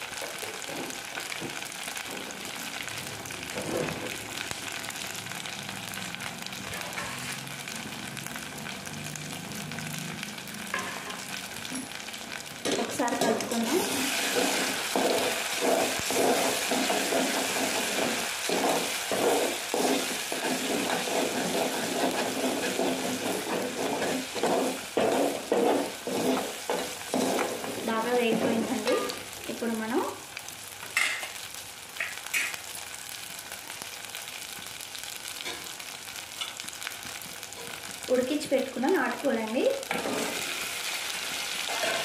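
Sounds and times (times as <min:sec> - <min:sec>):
onions sizzling in oil: 0:00.0 - 0:42.0
spatula stirring in pot: 0:14.1 - 0:29.2.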